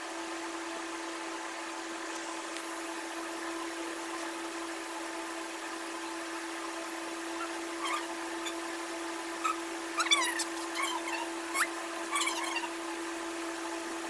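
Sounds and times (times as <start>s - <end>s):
steady mechanical hum: 0.0s - 14.0s
faint high chirps: 7.4s - 8.6s, 9.4s - 12.8s.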